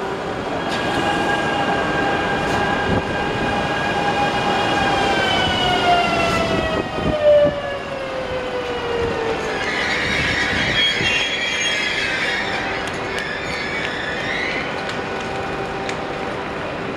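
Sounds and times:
electric train whine: 0.0s - 16.9s
wheels rumbling on track: 8.5s - 16.9s.

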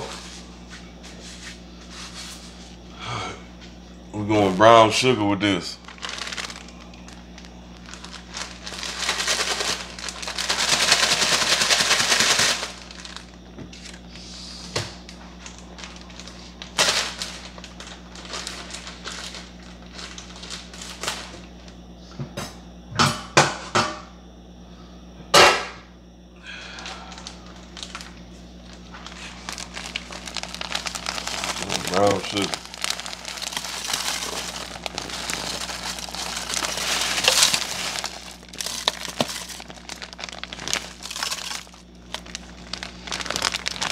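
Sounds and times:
faint steady hum: 0.0s - 43.9s
plastic packaging crinkling: 4.4s - 14.2s, 15.0s - 21.8s, 26.8s - 43.9s.

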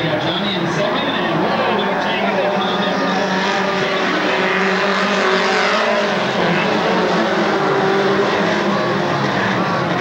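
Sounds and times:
race truck engines roaring past: 0.0s - 10.0s.

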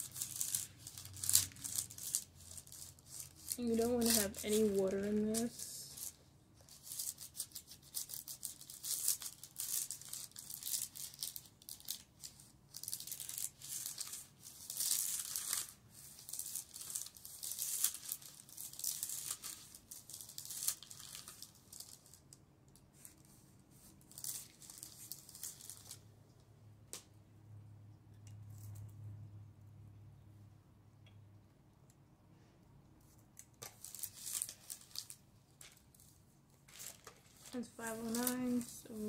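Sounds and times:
iron scrubbing on parchment paper: 36.9s - 39.0s.

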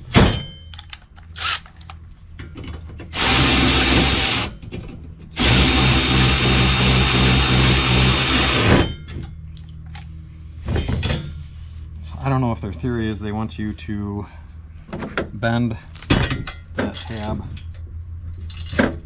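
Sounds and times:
cordless drill running: 1.4s - 1.6s, 3.2s - 4.5s, 5.4s - 8.7s.

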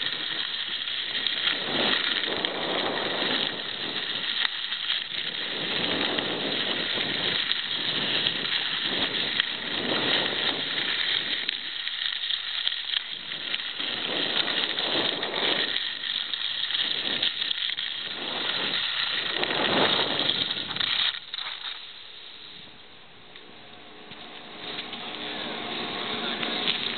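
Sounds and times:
wind on microphone: 0.0s - 11.9s, 12.9s - 21.2s
skis scraping over snow: 0.0s - 22.8s, 23.5s - 26.9s.

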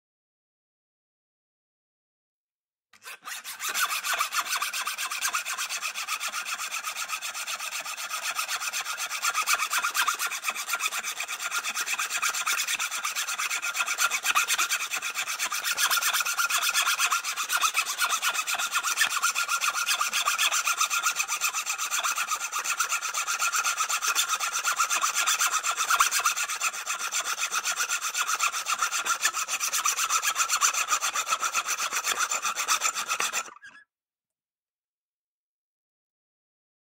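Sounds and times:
hacksaw sawing: 3.0s - 33.8s.

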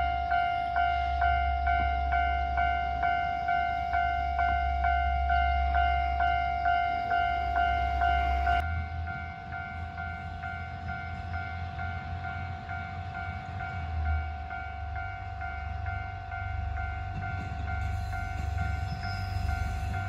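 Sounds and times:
diesel railcar rumble: 0.0s - 20.0s
level crossing warning bell: 0.0s - 20.0s.

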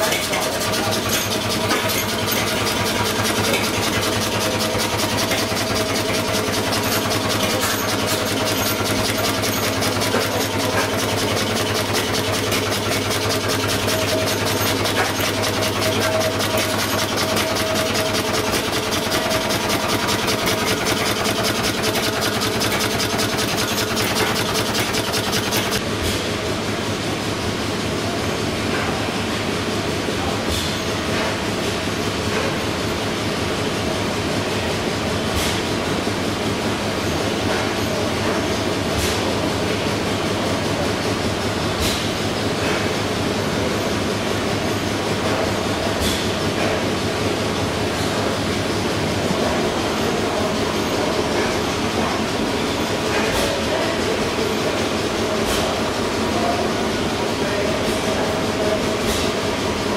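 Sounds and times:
diesel engines knocking: 0.0s - 26.4s.

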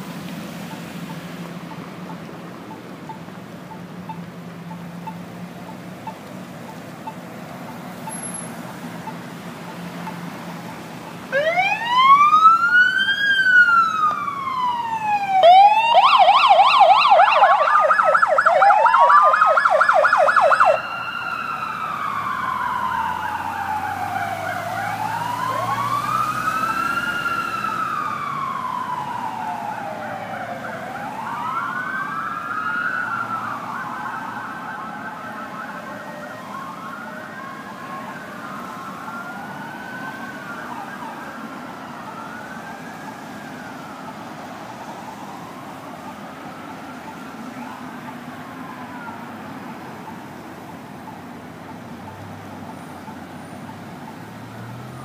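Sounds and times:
police sirens wailing: 0.0s - 55.0s
siren yelp: 3.1s - 55.0s.

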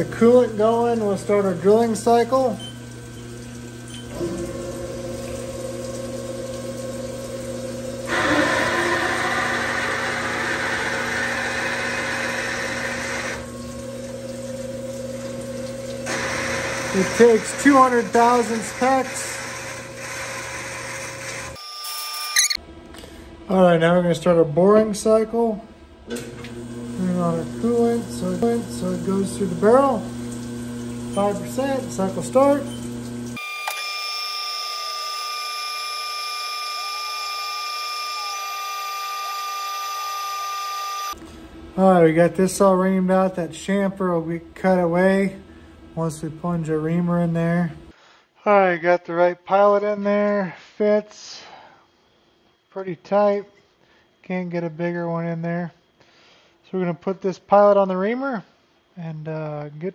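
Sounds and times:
coolant flowing: 0.0s - 21.6s, 26.3s - 43.9s
machine hum: 0.0s - 21.6s, 22.6s - 47.9s
lathe cutting metal: 4.0s - 22.1s
drill cutting metal: 7.8s - 15.2s, 15.8s - 22.6s, 26.9s - 41.2s.

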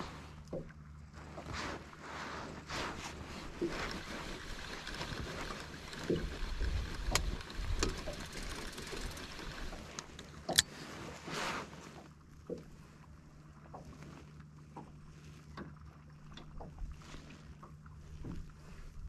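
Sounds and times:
water lapping against boat hull: 0.0s - 19.0s.

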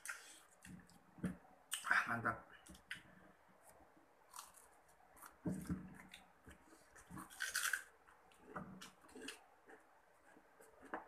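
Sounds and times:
person chewing food: 2.6s - 11.0s.

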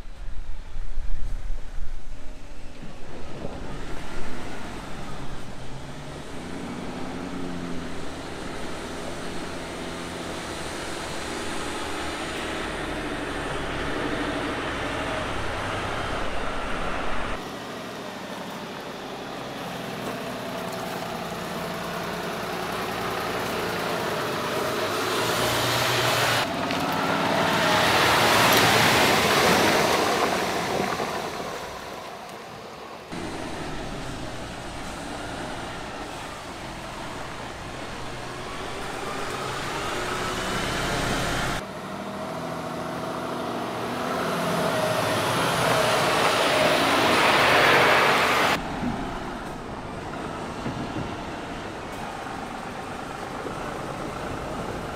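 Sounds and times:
diesel truck engine under load: 2.8s - 32.0s, 32.6s - 54.9s.

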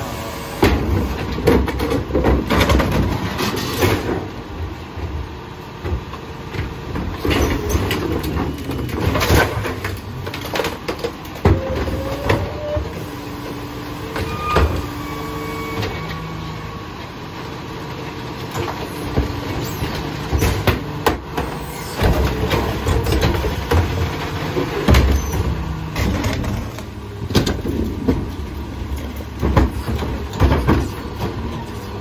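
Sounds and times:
hydraulic whine: 0.0s - 1.2s, 11.4s - 16.9s
garbage truck idling: 0.0s - 32.0s
trash carts banging and rattling: 0.0s - 32.0s.

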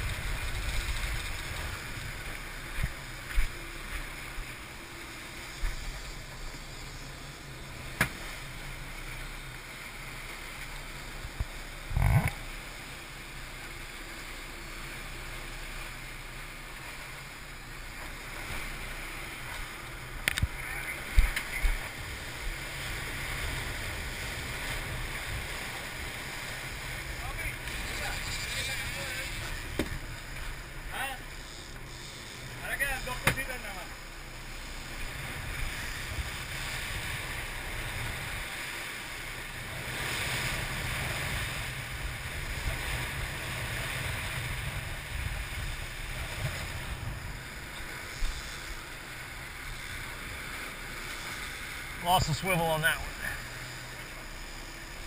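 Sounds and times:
wind on microphone: 0.0s - 4.1s, 39.7s - 50.5s
boat wake rushing: 0.0s - 55.0s.

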